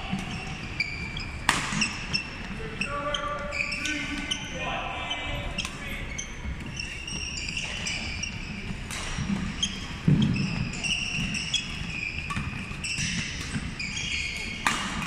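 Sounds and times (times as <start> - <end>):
rackets hitting shuttlecock: 0.0 - 2.6, 5.5 - 5.9, 6.5 - 15.0
shoes squeaking on wooden floor: 0.0 - 15.0.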